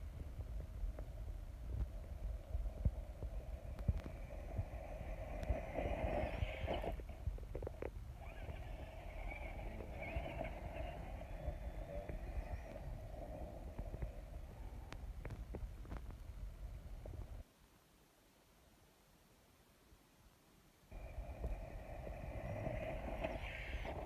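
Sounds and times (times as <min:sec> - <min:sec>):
low wind rumble: 0:00.0 - 0:17.4, 0:20.9 - 0:24.0
rc car motor and gears whining: 0:03.3 - 0:15.0, 0:21.0 - 0:24.0.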